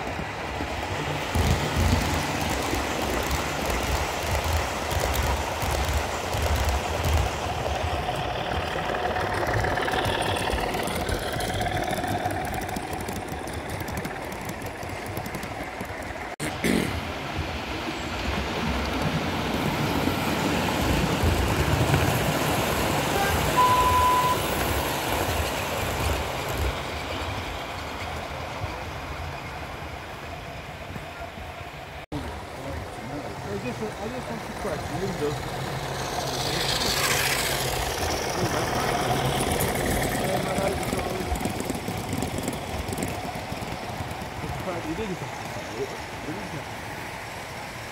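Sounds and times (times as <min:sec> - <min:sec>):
model trains rumbling on rails: 0:00.0 - 0:47.9
short high beep: 0:23.2 - 0:24.4.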